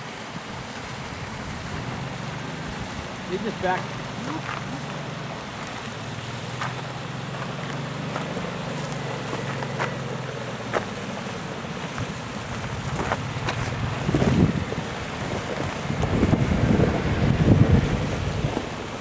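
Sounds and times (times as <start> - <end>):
wind noise on microphone: 0.0 - 4.9, 11.6 - 19.0
engine running: 0.0 - 19.0.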